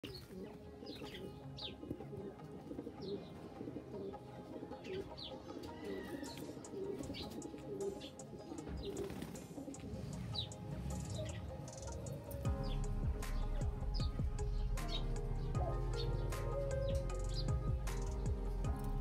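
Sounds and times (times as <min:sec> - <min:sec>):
birds chirping: 0:00.0 - 0:19.0
pigeons cooing: 0:00.0 - 0:19.0.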